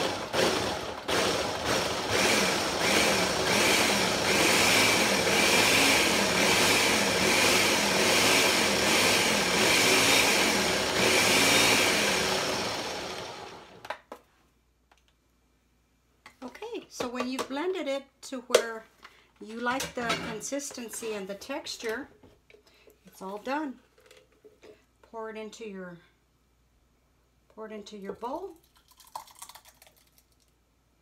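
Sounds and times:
blender motor running: 0.0 - 13.8.

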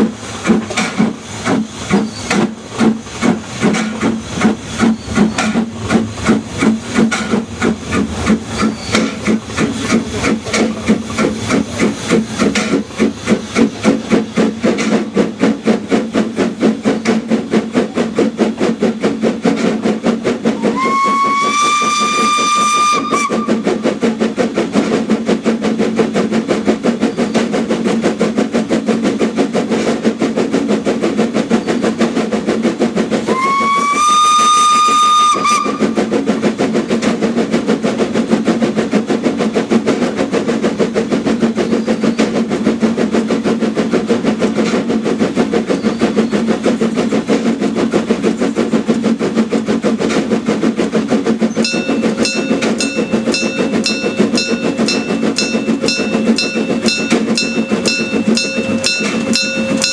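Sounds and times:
steam locomotive exhaust beats: 0.0 - 59.9
steam locomotive whistle: 20.6 - 23.6, 33.3 - 36.0.

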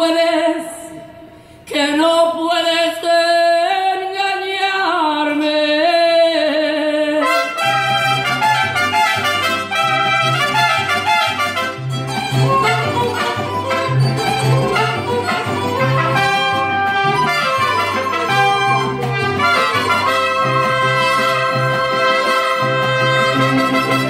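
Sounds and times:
mariachi band playing: 7.2 - 24.0.

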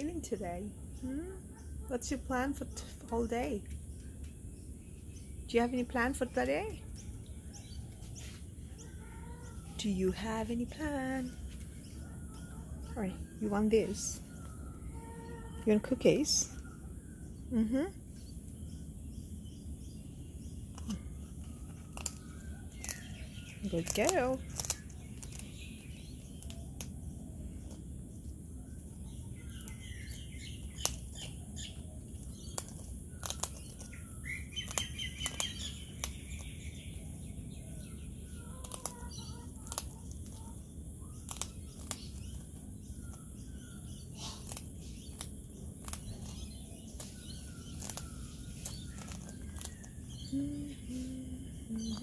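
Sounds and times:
faint birds chirping: 0.0 - 52.0
bird crunching a cracker: 20.6 - 50.1.

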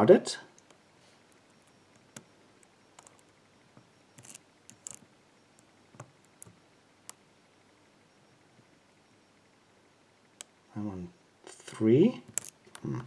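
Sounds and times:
lock pick metallic clicks: 4.2 - 5.0, 12.3 - 12.8.

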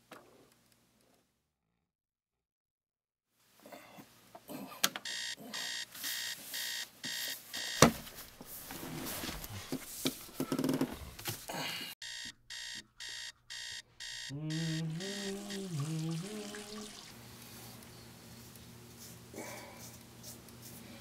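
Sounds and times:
alarm clock beeping: 5.0 - 8.0, 12.0 - 15.7.

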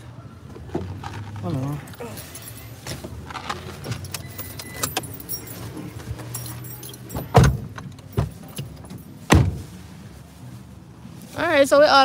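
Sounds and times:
clicks and rattles in car cabin: 0.4 - 9.7.

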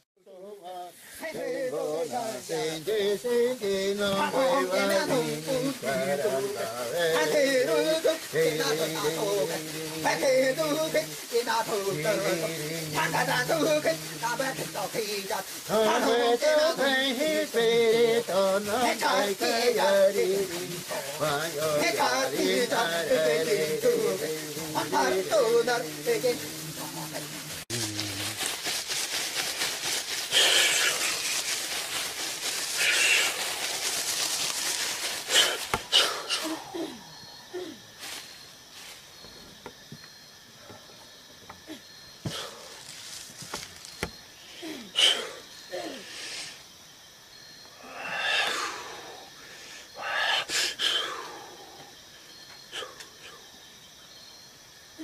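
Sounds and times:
fire hissing: 0.8 - 36.8.

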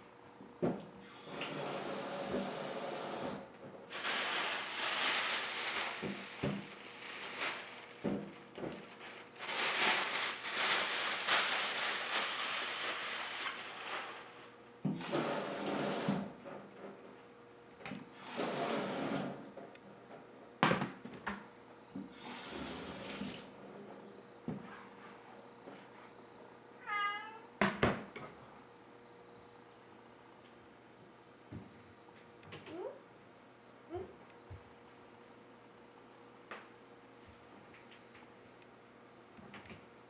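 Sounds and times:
tap water running: 22.3 - 23.5
cat meowing: 26.8 - 27.5.

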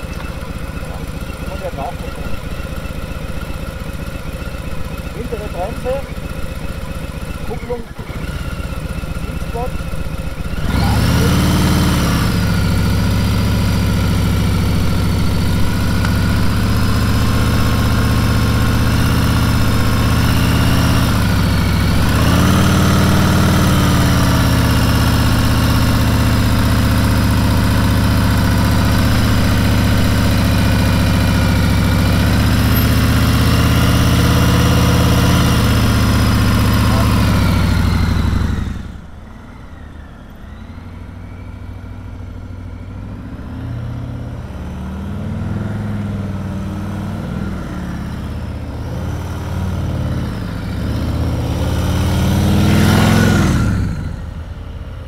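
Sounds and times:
motorcycle engine fast idle: 0.0 - 11.3.

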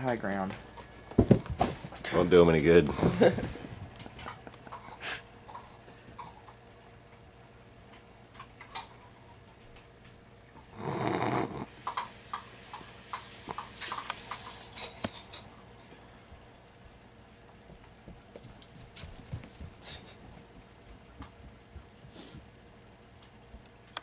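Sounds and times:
cat breathy rasp: 10.7 - 11.7
cats scuffling on carpet: 17.6 - 22.4.

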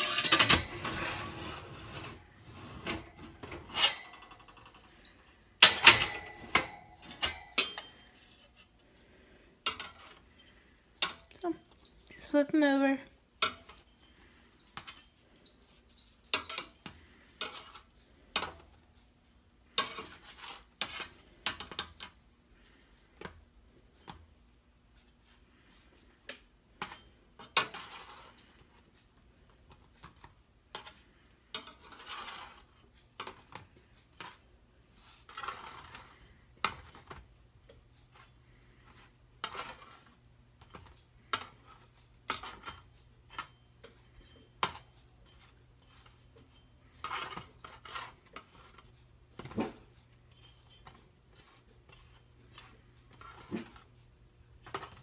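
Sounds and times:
spatula scraping metal baking sheet: 0.0 - 4.6, 17.0 - 18.5, 19.8 - 21.8, 26.8 - 28.9, 30.2 - 37.2, 38.1 - 53.9.

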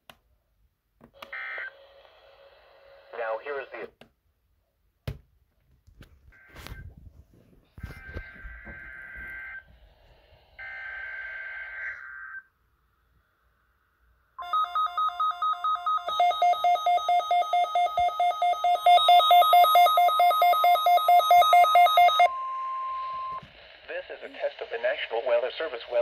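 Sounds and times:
steady warning alarm tone: 7.8 - 9.7, 14.4 - 23.4.

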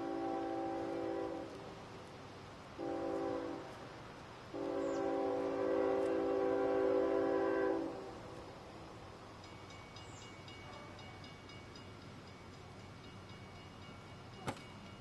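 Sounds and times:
locomotive air horn blasts: 0.0 - 1.6, 2.8 - 3.7, 4.5 - 8.1.

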